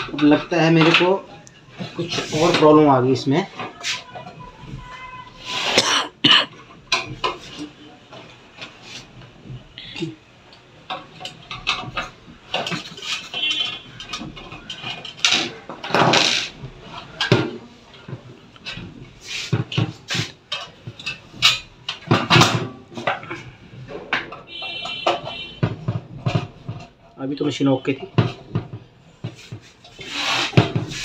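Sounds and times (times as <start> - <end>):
screwdriver scraping: 29.8 - 31.0.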